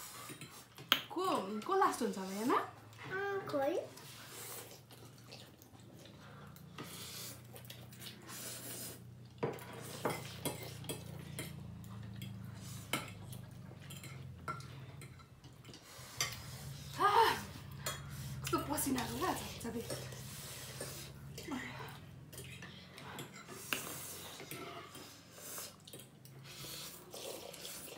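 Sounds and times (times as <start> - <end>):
noodle slurping: 6.8 - 9.1, 23.6 - 27.9.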